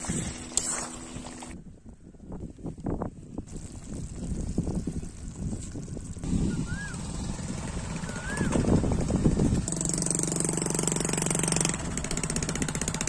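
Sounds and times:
outdoor noise: 0:00.0 - 0:13.0
small engine running: 0:03.5 - 0:13.0
rising-falling whistles: 0:06.4 - 0:07.1, 0:08.0 - 0:08.7.

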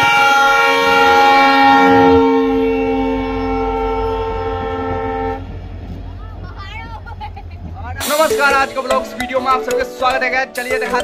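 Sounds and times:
locomotive horn blast: 0:00.0 - 0:06.2
train rumbling past: 0:00.0 - 0:09.7.

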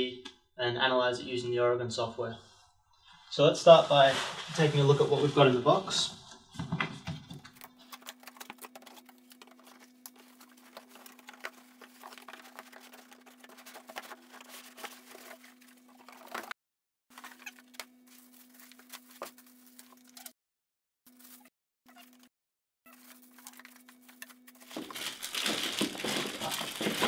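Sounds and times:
plastic wrap rustling: 0:07.4 - 0:16.6, 0:17.2 - 0:20.2, 0:22.9 - 0:27.0
cardboard box being opened: 0:07.6 - 0:16.5, 0:24.6 - 0:27.0.

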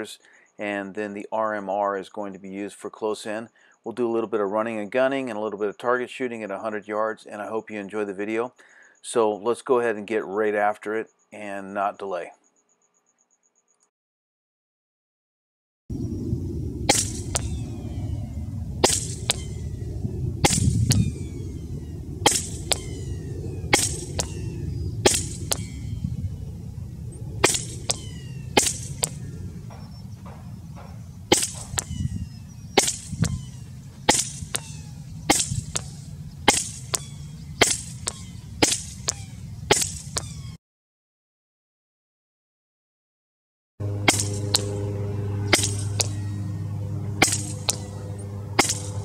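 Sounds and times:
air rifle shots: 0:16.8 - 0:17.6, 0:18.8 - 0:19.7, 0:20.4 - 0:25.9, 0:27.4 - 0:40.5, 0:44.0 - 0:44.9, 0:45.5 - 0:46.3, 0:47.2 - 0:49.0
faint second crack: 0:16.9 - 0:17.6, 0:18.8 - 0:19.5, 0:20.4 - 0:21.1, 0:23.7 - 0:24.4.

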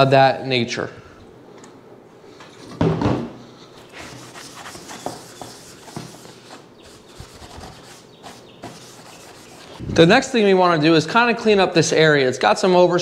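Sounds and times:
cloth rubbing on plastic: 0:03.9 - 0:09.9.

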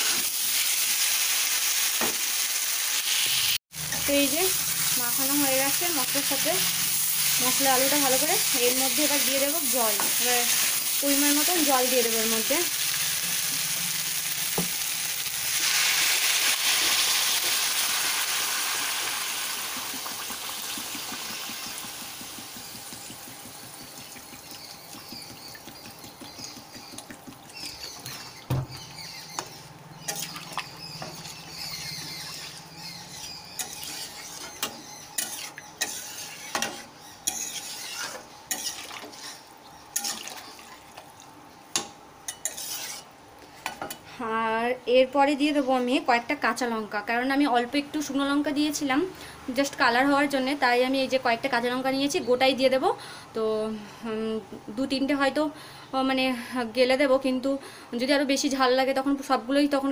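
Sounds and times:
water sizzling in hot oil: 0:00.0 - 0:26.4, 0:31.5 - 0:40.9
metal spatula scraping pan: 0:31.0 - 0:40.3, 0:42.3 - 0:43.1.

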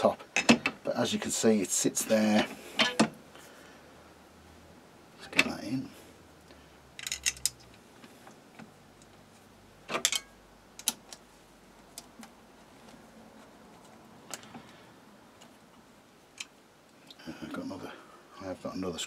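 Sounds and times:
metal clicks and clinks: 0:07.0 - 0:07.6.

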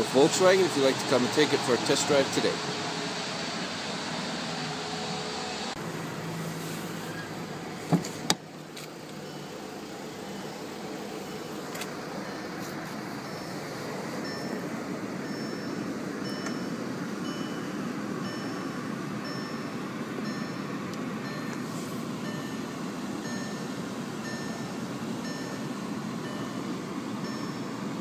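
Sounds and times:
steady low hum: 0:00.0 - 0:28.0
car warning chime beeping: 0:09.2 - 0:28.0.

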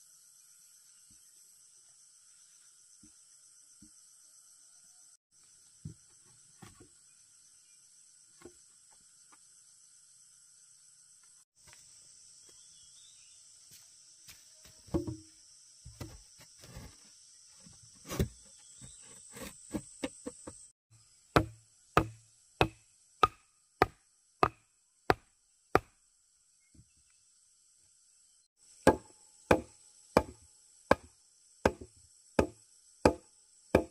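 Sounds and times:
insects droning: 0:00.0 - 0:33.9
stake being pounded with log: 0:14.7 - 0:15.3, 0:15.9 - 0:16.9, 0:18.0 - 0:20.6, 0:21.3 - 0:26.0, 0:28.8 - 0:33.9
wooden planks knocking and scraping: 0:14.8 - 0:15.3, 0:15.9 - 0:20.7.

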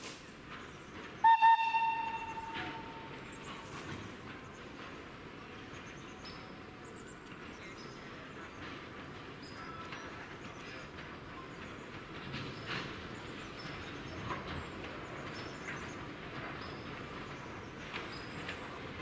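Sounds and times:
train rumble: 0:00.0 - 0:19.0
train whistle toots: 0:01.2 - 0:03.4.

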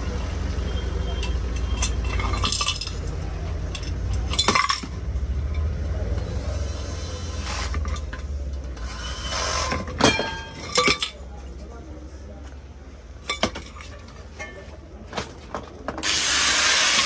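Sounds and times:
metallic clinks and knocks: 0:01.1 - 0:05.8, 0:10.0 - 0:11.6, 0:13.2 - 0:15.8.

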